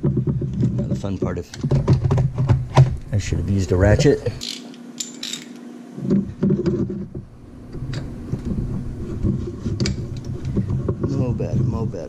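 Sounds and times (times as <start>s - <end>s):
faint steady hum: 0.0s - 12.0s
hand tools clinking against metal: 4.4s - 5.6s.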